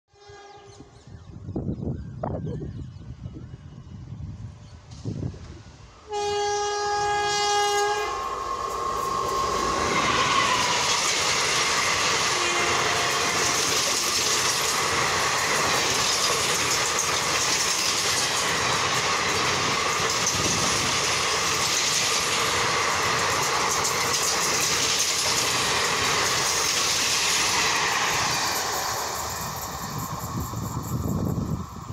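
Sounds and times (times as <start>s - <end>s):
locomotive horn blast: 0.1s - 0.7s, 6.1s - 8.4s, 12.3s - 13.6s
train rushing past on rails: 3.0s - 31.9s.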